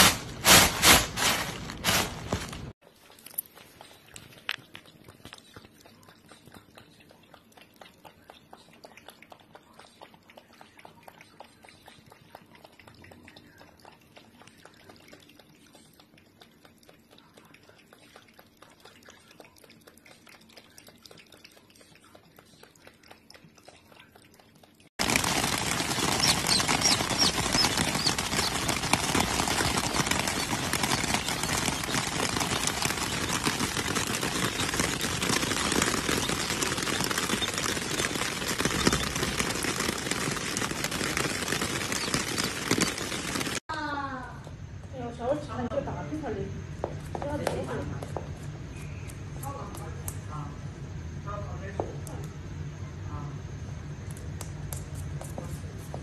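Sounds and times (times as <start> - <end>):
cats lapping water: 2.8 - 43.7
rain on a plastic umbrella: 25.0 - 43.6.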